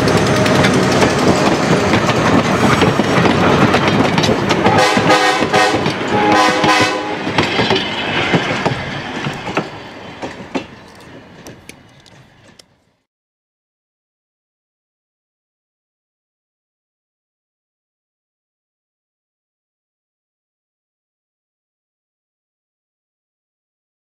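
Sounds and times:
train wheels clicking over rail joints: 0:00.0 - 0:13.0
locomotive horn blasts: 0:04.7 - 0:07.4.

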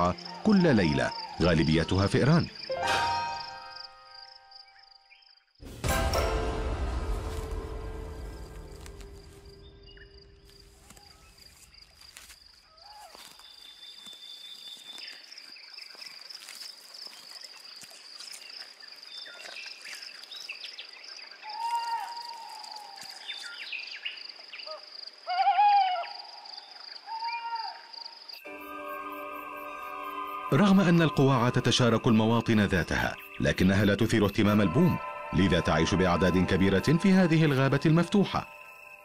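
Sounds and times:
insect trill: 0:00.0 - 0:39.0
owl hooting: 0:21.4 - 0:23.0, 0:24.7 - 0:27.9.

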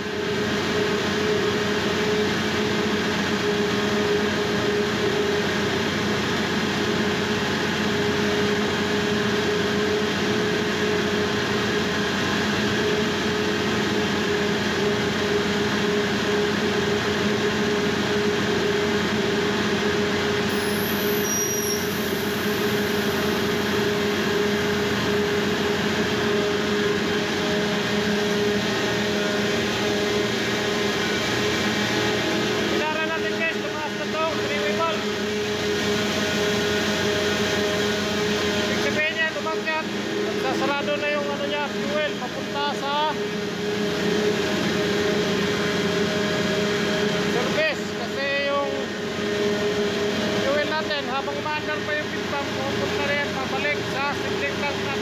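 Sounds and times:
centrifugal separator running: 0:00.0 - 0:55.0
engine room machinery drone: 0:00.0 - 0:55.0
brief high whistle: 0:20.5 - 0:22.4.

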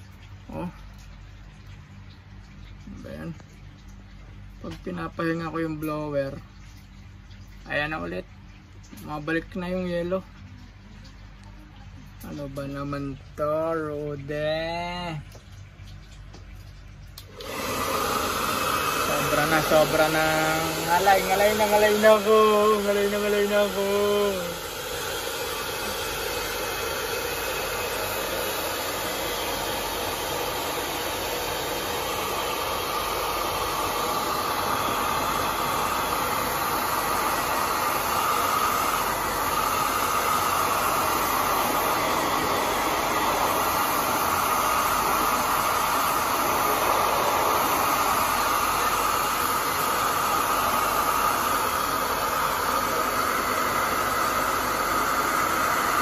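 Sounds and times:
hair dryer blowing: 0:17.2 - 0:56.0.

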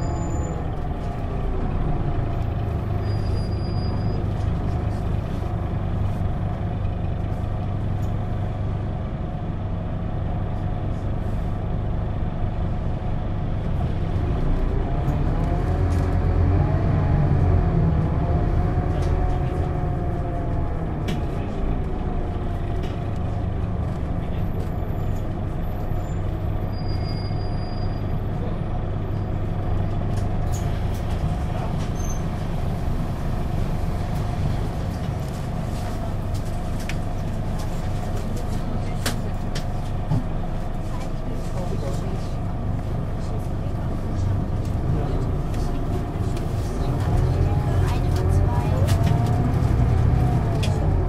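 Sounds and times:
bus diesel engine: 0:00.0 - 0:51.0.

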